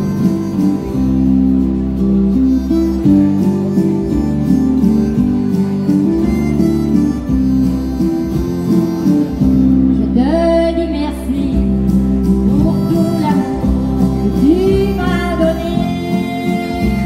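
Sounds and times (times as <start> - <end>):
harmonica melody: 0.0 - 17.0
strummed acoustic guitar: 0.0 - 17.0
woman singing: 10.0 - 11.8, 12.4 - 17.0.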